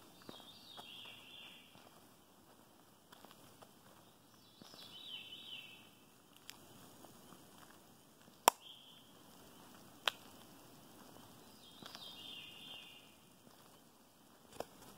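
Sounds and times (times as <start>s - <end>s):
twigs snapping underfoot: 8.4s - 8.7s, 10.0s - 10.4s.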